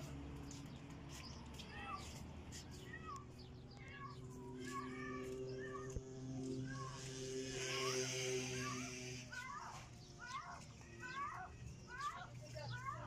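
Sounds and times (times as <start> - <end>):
steady low hum: 3.0 - 13.0.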